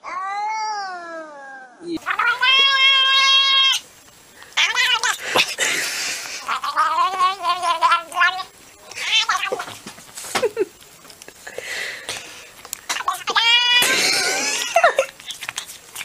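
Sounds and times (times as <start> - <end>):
cat yowling: 0.0 - 3.8, 4.6 - 5.2, 13.0 - 13.9.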